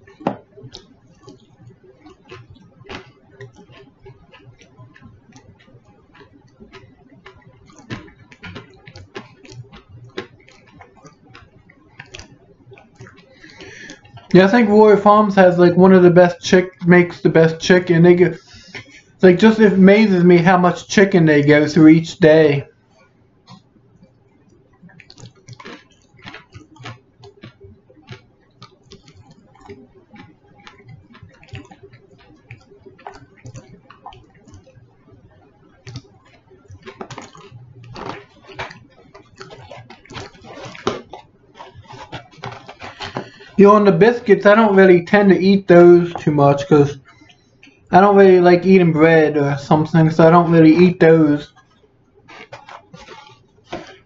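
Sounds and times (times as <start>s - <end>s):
soft mouth sounds: 0.0s - 14.3s, 24.8s - 43.6s, 50.3s - 54.0s
chewing crunchy fried food: 0.0s - 20.2s, 22.2s - 48.3s, 49.5s - 54.0s.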